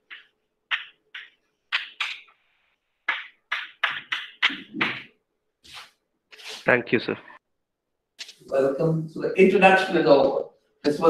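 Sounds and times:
chalk scratching on blackboard: 0:05.7 - 0:06.7.

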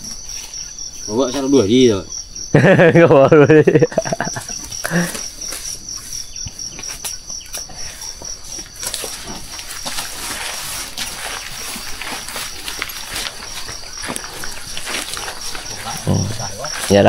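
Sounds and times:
insects chirping: 0:00.0 - 0:17.0
shuffling: 0:03.6 - 0:17.0.

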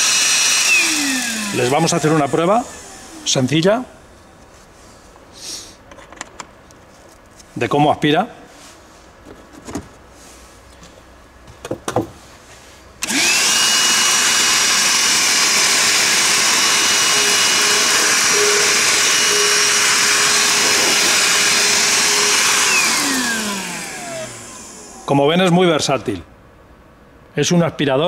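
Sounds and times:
handheld vacuum whining: 0:00.0 - 0:03.7, 0:13.0 - 0:25.4.

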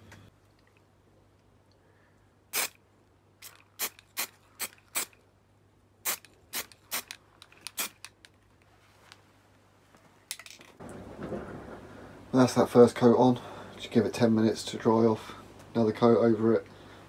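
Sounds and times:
aerosol spray hissing bursts: 0:02.5 - 0:02.8, 0:03.4 - 0:05.2.

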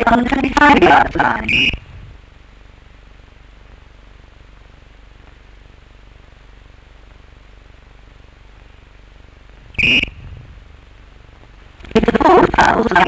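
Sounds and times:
old film soundtrack hiss: 0:00.0 - 0:13.0
referee whistle blast: 0:09.8 - 0:10.2.

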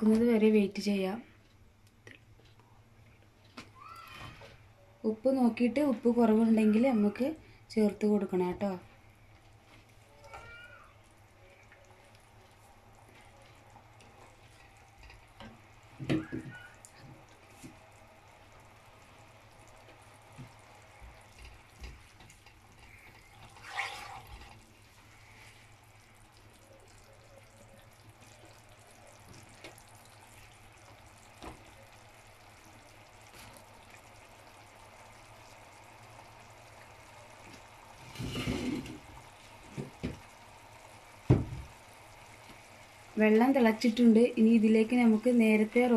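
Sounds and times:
faint water heating: 0:00.0 - 0:45.9
wooden spatula scraping a pan: 0:22.9 - 0:24.6, 0:38.0 - 0:39.1.

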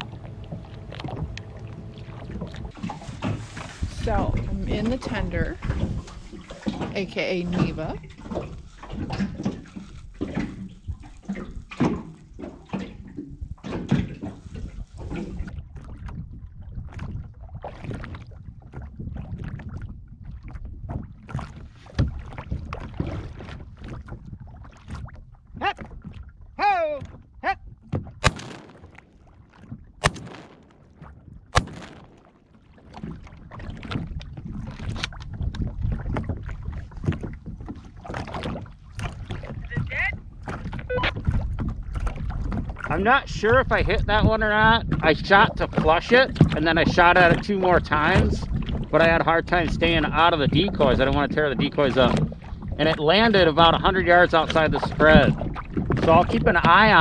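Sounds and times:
wind and water against boat: 0:00.0 - 0:57.0
shotgun shots: 0:28.2 - 0:29.1, 0:30.0 - 0:30.9, 0:31.6 - 0:32.2.

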